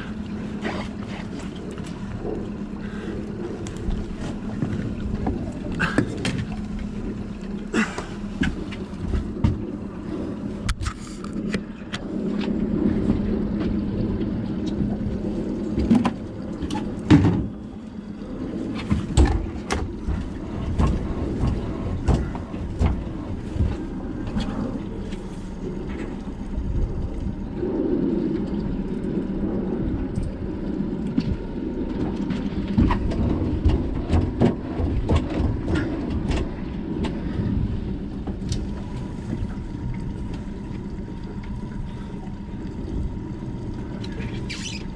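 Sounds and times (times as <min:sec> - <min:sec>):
faint motor hum: 0:00.0 - 0:44.9
wind buffeting microphone: 0:00.0 - 0:44.9.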